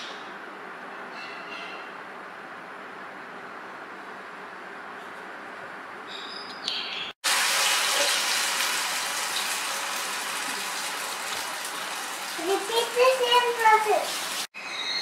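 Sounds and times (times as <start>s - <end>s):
hot oil sizzling: 7.2s - 14.5s.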